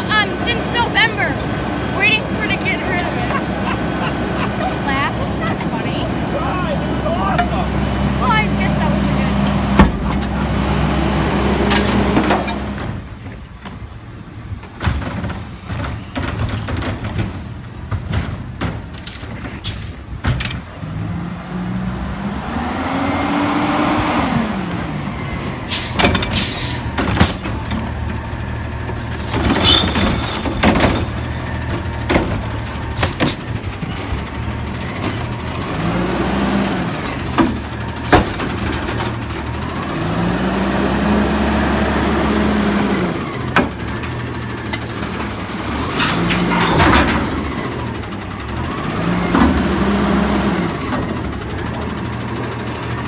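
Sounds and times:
diesel truck engine revving: 0:00.0 - 0:13.1, 0:20.0 - 0:53.0
metallic clanks and bangs: 0:29.2 - 0:34.0.

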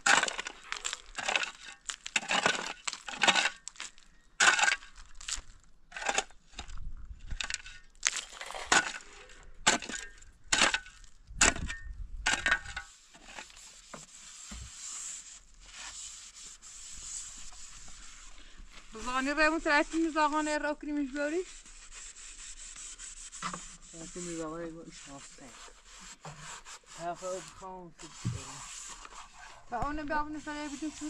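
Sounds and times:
rocks clattering: 0:00.0 - 0:12.8
shovel scraping gravelly soil: 0:00.0 - 0:16.3, 0:28.0 - 0:31.0.

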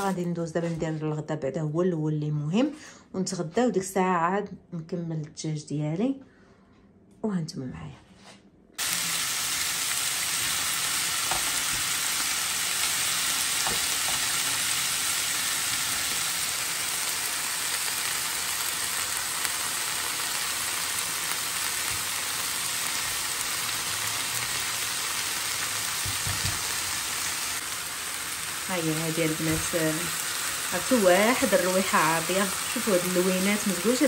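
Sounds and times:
food sizzling in hot oil: 0:00.0 - 0:00.3, 0:08.8 - 0:34.0
spatula stirring vegetables: 0:12.8 - 0:16.4.

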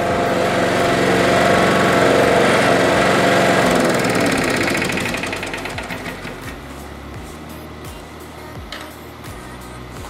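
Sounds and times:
lawn mower engine running: 0:00.0 - 0:10.0.

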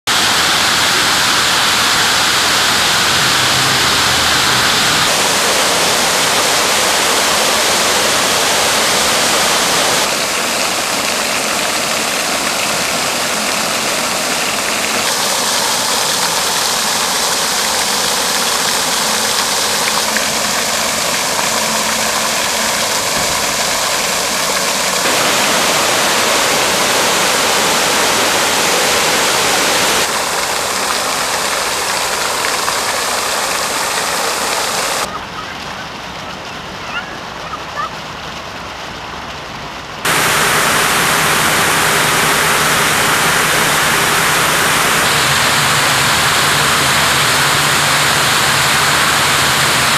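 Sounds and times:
fountain water splashing: 0:00.0 - 0:49.9.

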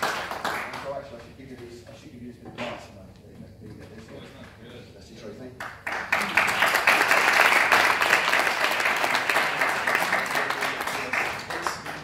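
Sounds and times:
audience clapping: 0:00.0 - 0:01.8, 0:05.6 - 0:12.0.

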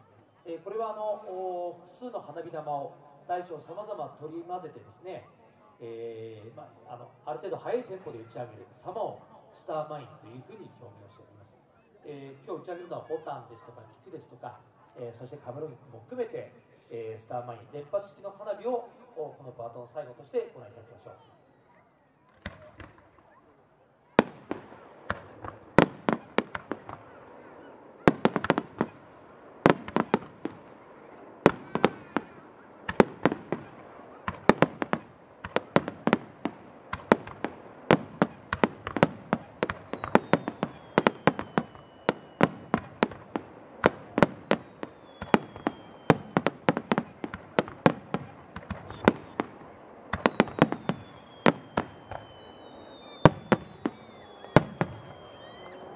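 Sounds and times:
fireworks launch and burst reports: 0:24.2 - 0:55.9
falling firework whistles: 0:29.6 - 0:55.9.

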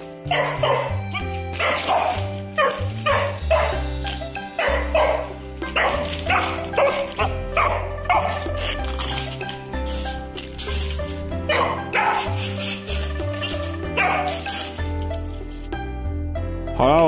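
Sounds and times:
background music with held notes: 0:00.0 - 0:17.0
dog barking excitedly: 0:00.2 - 0:09.3, 0:11.3 - 0:14.8.

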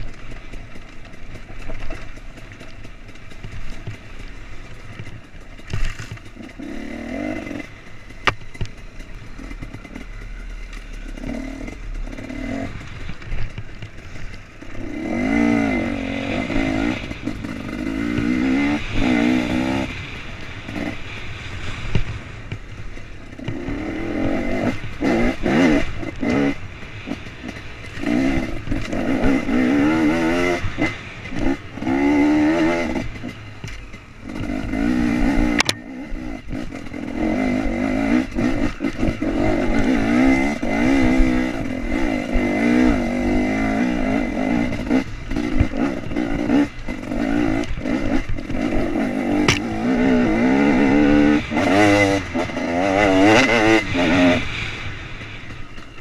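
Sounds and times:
motorcycle engine revving: 0:00.0 - 0:56.0
sharp knocks: 0:49.5 - 0:49.7.

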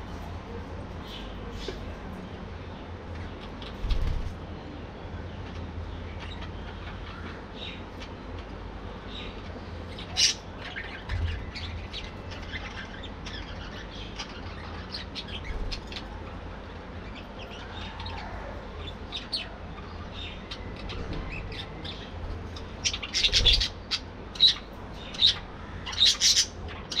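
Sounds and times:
budgerigars chirping: 0:09.1 - 0:16.4, 0:17.0 - 0:27.0.

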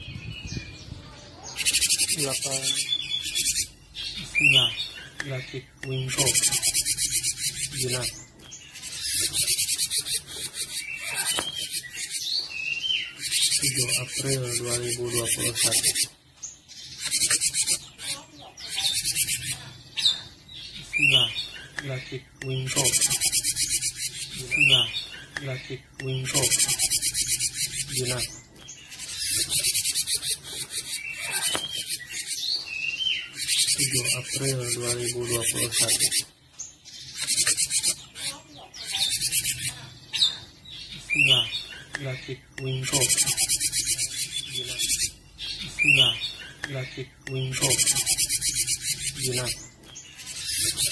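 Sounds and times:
bird rasping churr: 0:06.0 - 0:08.1, 0:08.7 - 0:12.3, 0:13.0 - 0:16.1, 0:17.0 - 0:20.3, 0:22.6 - 0:25.1, 0:26.2 - 0:28.3, 0:28.9 - 0:32.5, 0:37.1 - 0:40.4, 0:42.6 - 0:46.6, 0:47.5 - 0:50.9.

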